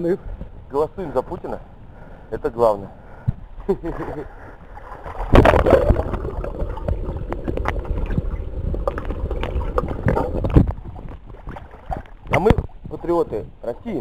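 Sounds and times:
water splash: 3.9s - 12.8s
underwater bubbling and clicks: 4.6s - 13.0s
muffled underwater sound: 5.4s - 12.9s.

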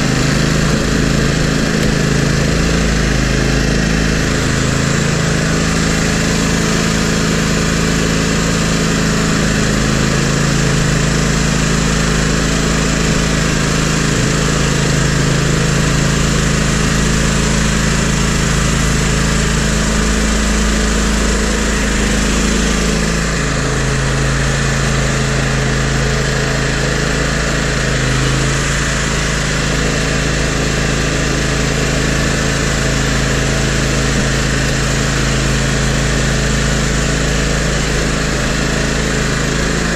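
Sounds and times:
engine running steadily: 0.0s - 39.9s.

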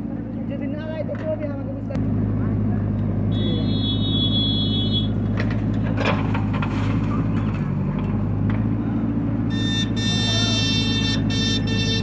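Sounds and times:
diesel engine running: 0.0s - 12.0s
high steady tone: 9.5s - 12.0s.

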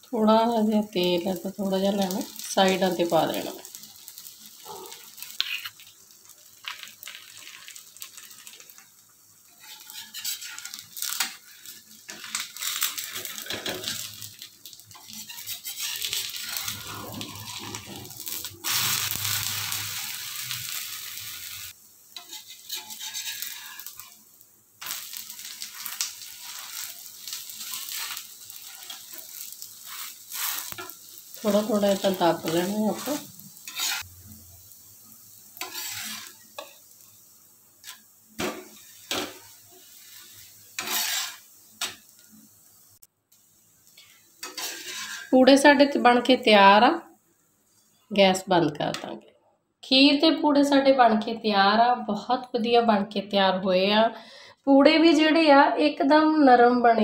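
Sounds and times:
batter sizzling on a griddle: 0.0s - 49.0s
metal spatula scraping griddle: 4.7s - 5.8s, 9.5s - 21.6s, 22.2s - 24.2s, 24.8s - 34.1s, 35.6s - 36.8s, 37.8s - 39.4s, 40.0s - 42.0s, 44.4s - 45.5s.

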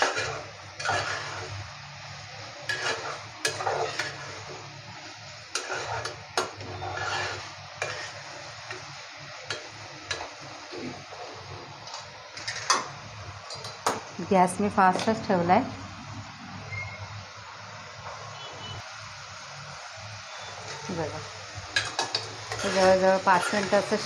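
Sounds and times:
metal spatula scraping a pan: 0.0s - 11.5s, 12.3s - 13.0s, 21.7s - 24.0s
frying sizzle: 0.0s - 24.0s.

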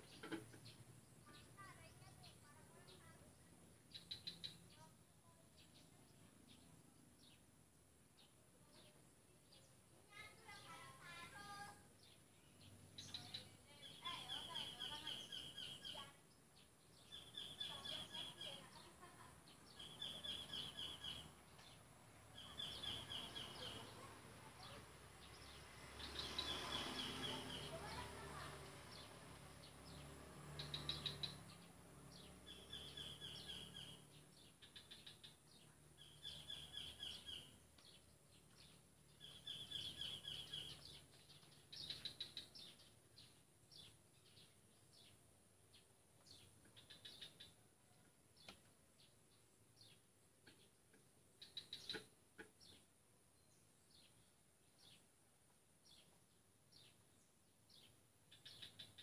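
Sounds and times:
bird singing trilled phrase: 8.7s - 21.3s, 22.4s - 29.1s, 30.6s - 38.0s, 38.6s - 45.2s.

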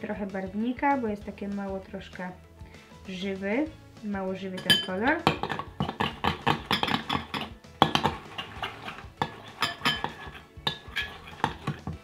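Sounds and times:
spoon stirring slime in glass bowl: 4.5s - 12.0s.

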